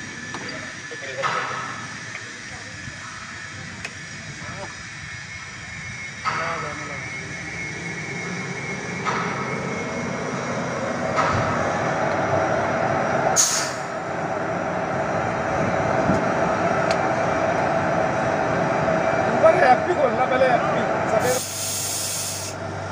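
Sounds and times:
locomotive machinery humming: 0.0s - 22.9s
sharp hiss of air: 13.4s - 13.9s, 21.2s - 22.6s.

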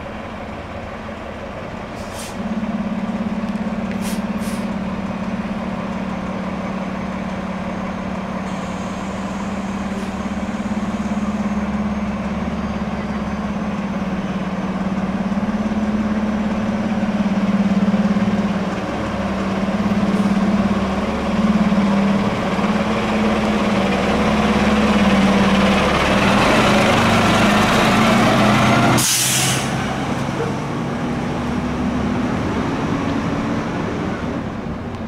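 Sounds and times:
fire truck engine running: 0.0s - 35.0s
air brakes hissing: 1.9s - 2.5s, 3.9s - 4.8s, 8.4s - 11.9s, 28.9s - 30.5s.

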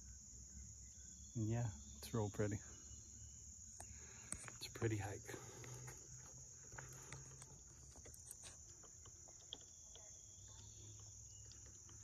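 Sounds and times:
insects droning: 0.0s - 12.0s.

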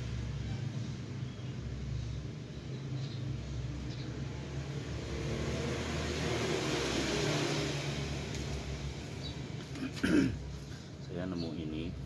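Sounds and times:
vehicle engine passing: 3.2s - 9.8s.

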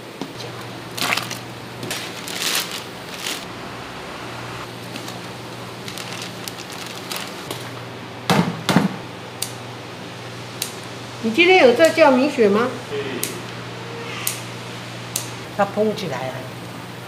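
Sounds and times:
low electrical hum: 0.0s - 17.0s
rustling: 0.9s - 7.5s.

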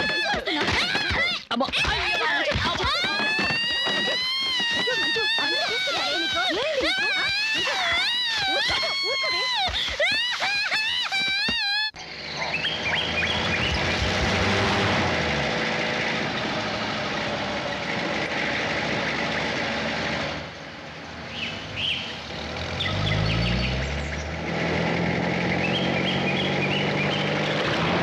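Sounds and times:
birds chirping: 11.8s - 14.6s, 20.5s - 24.4s, 25.2s - 27.8s
car engine driving and revving: 12.0s - 28.0s.

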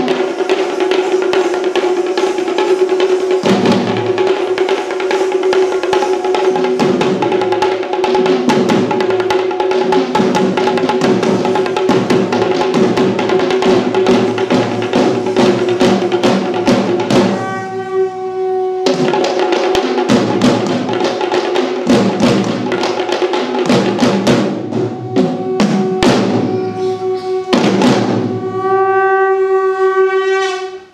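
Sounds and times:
drum ensemble beating fast: 0.0s - 29.1s
wind instrument held note: 13.5s - 20.0s, 24.5s - 30.9s.

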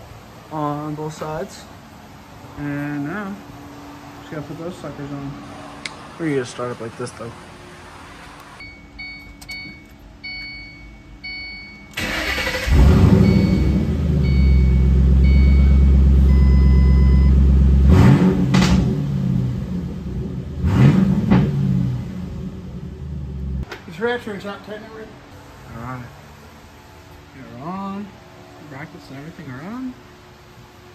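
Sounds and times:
car warning chime beeping: 8.6s - 17.5s
car engine idling: 11.9s - 23.6s
car engine starting: 11.9s - 23.7s
engine revving: 12.0s - 23.6s.

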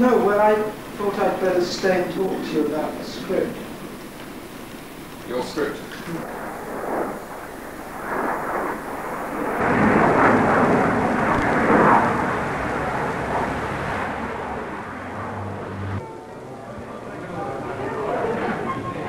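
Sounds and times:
jet engine rumbling: 0.0s - 19.0s.

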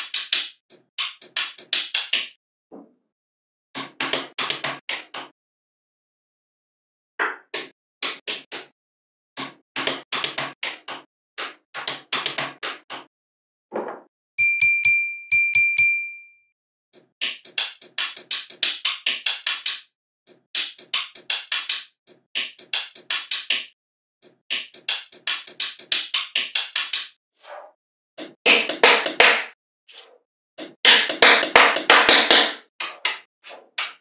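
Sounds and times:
bright chime ringing: 14.4s - 16.5s
magnetic balls clicking together: 17.0s - 27.2s.

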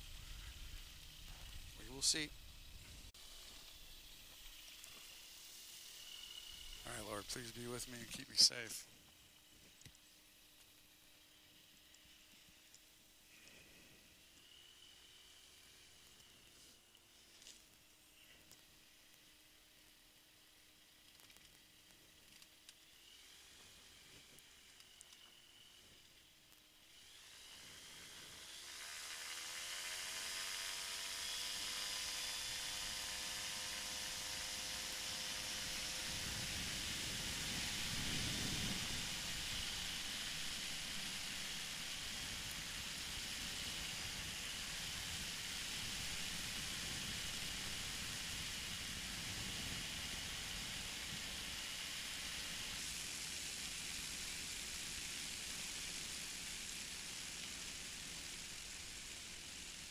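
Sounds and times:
microlight engine at high power: 0.0s - 59.9s
wind rush on microphone: 36.0s - 39.3s.

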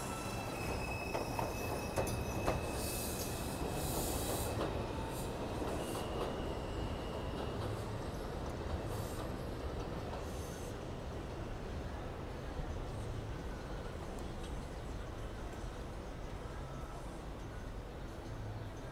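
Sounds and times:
high wheel squeal: 0.0s - 7.4s
train wheels rumbling on rails: 0.0s - 18.8s.

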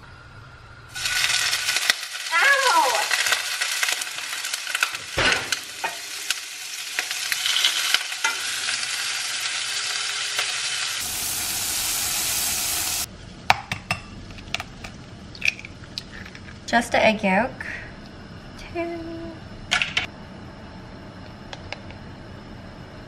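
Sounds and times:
shrimp sizzling in hot oil: 0.9s - 13.1s.

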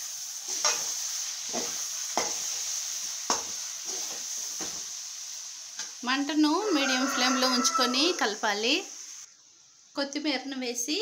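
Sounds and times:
vegetables sizzling: 0.0s - 11.0s
metal spatula scraping a pan: 0.4s - 4.8s.

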